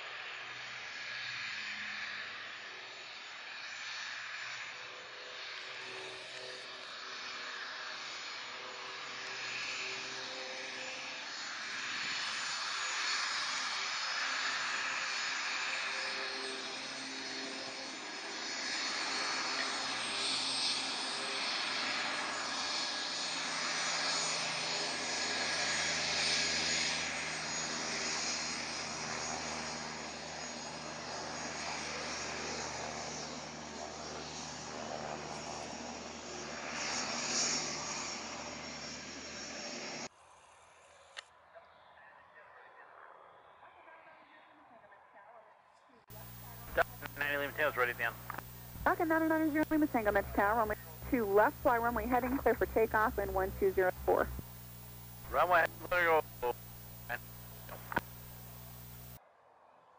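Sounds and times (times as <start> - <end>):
jet engines whining: 46.1 - 59.2.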